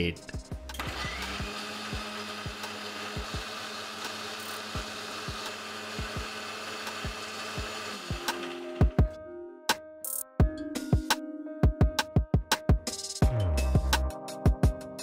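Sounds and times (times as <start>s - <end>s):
mixer-grinder motor whirring: 0.7s - 9.1s.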